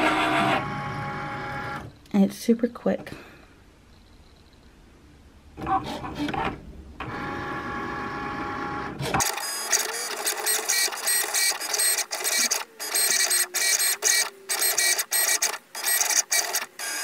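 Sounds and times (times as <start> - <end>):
cutting machine motors whirring: 5.6 - 17.0.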